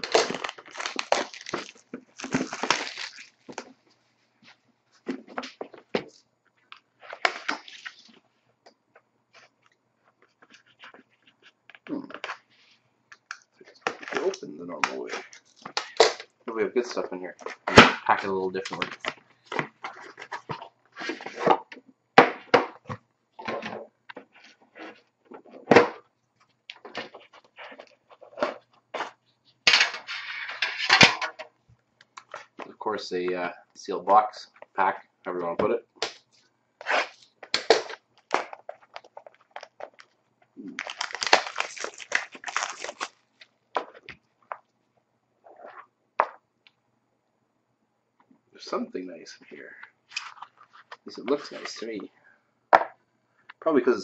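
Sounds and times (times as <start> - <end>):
plastic wrapping crinkling and tearing: 0.0 - 3.8, 36.9 - 44.1.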